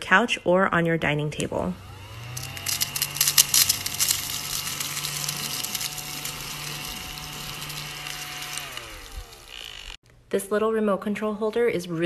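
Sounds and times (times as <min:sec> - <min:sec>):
handheld vacuum motor humming: 0:01.4 - 0:10.0
crumbs crackling into vacuum: 0:02.2 - 0:10.0.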